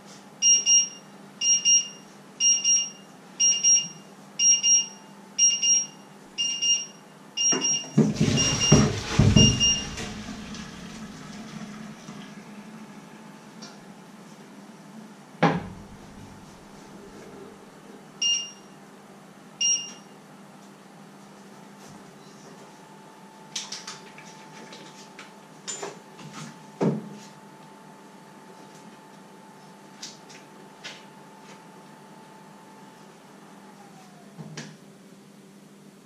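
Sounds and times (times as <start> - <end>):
electronic timer beeping: 0.4 - 8.8, 9.4 - 10.0, 19.6 - 20.0.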